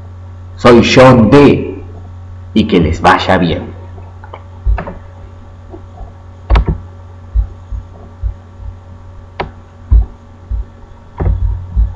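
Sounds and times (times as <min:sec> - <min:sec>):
electrical hum and buzz: 0:00.0 - 0:11.9
dull low thumps: 0:04.6 - 0:05.1, 0:06.0 - 0:11.9
sharp click: 0:09.4 - 0:09.6.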